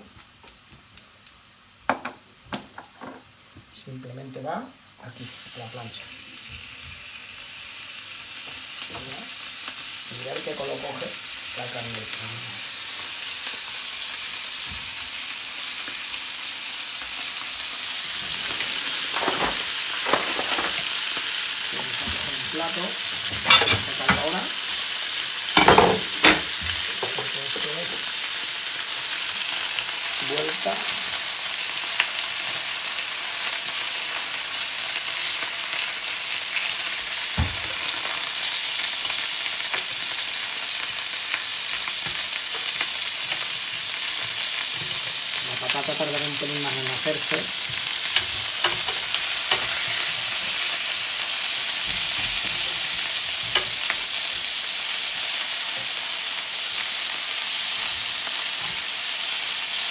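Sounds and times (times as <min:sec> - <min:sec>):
meat sizzling on griddle pan: 0:00.0 - 0:59.9.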